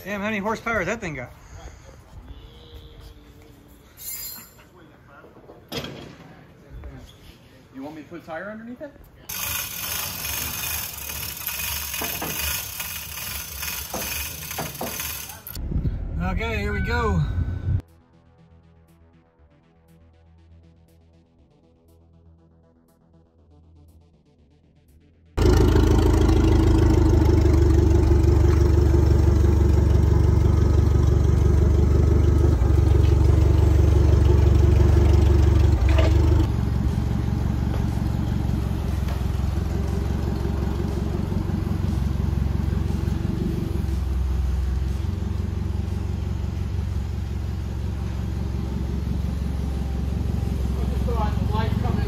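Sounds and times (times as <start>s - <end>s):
vehicle engine with road noise: 9.3s - 17.8s, 25.3s - 52.0s
forklift engine hum: 25.4s - 52.0s.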